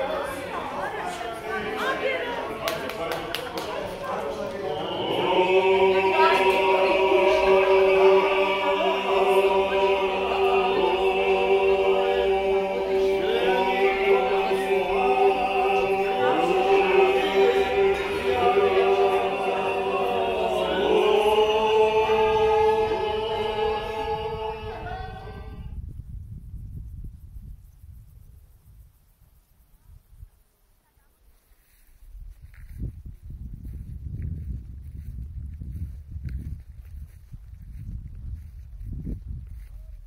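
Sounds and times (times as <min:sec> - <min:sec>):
men singing a cappella: 0:04.1 - 0:25.5.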